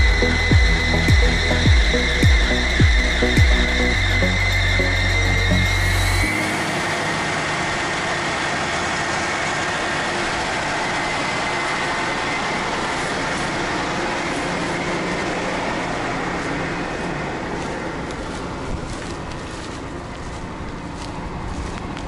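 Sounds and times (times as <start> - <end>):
combine harvester machinery running: 0.0 - 22.0.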